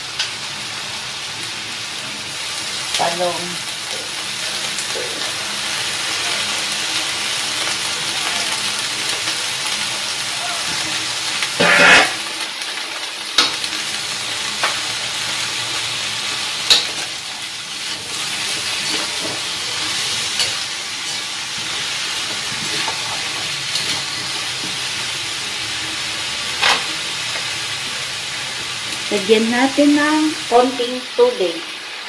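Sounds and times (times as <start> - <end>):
vegetables sizzling in a wok: 0.0 - 32.0
metal spatula scraping pan: 11.6 - 12.3.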